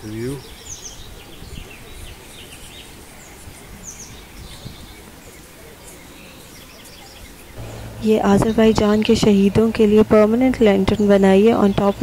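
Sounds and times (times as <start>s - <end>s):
small birds chirping: 0.0s - 12.0s
low outdoor rumble: 7.6s - 12.0s.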